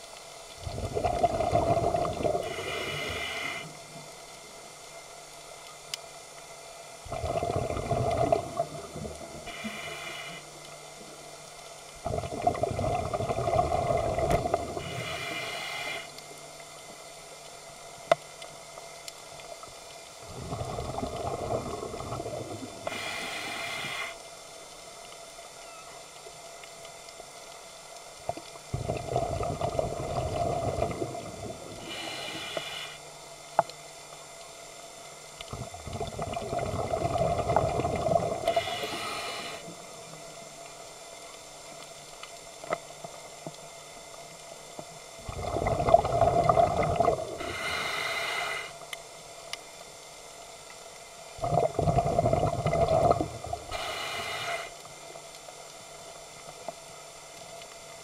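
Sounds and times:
bubbling exhaled air underwater: 0.6s - 3.6s, 7.0s - 10.3s, 12.0s - 16.1s, 20.2s - 24.1s, 28.6s - 32.7s, 35.5s - 39.6s, 45.2s - 48.7s, 51.3s - 54.7s
regulator inhale hiss: 2.2s - 4.1s, 8.8s - 11.0s, 14.0s - 16.4s, 22.7s - 24.4s, 30.3s - 33.3s, 38.3s - 39.9s, 47.2s - 49.0s, 53.0s - 55.1s.

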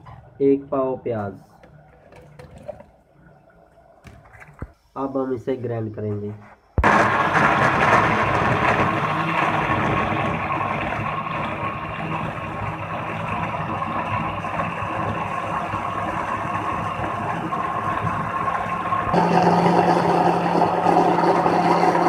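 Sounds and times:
blender motor whining: 6.8s - 22.0s.

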